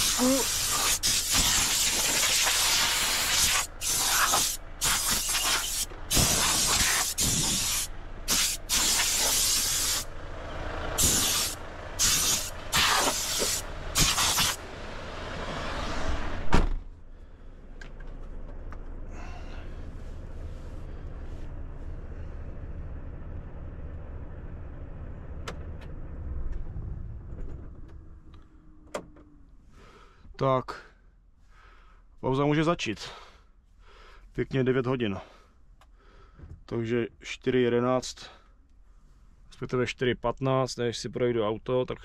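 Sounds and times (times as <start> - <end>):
compressed air gun hissing: 0.0 - 10.1, 11.0 - 14.6
sharp thump: 16.5 - 16.9.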